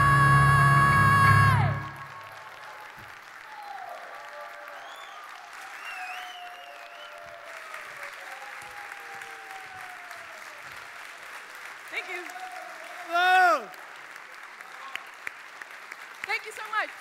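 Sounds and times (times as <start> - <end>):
high whistle: 0.0 - 2.5
audience applauding and cheering: 0.0 - 17.0.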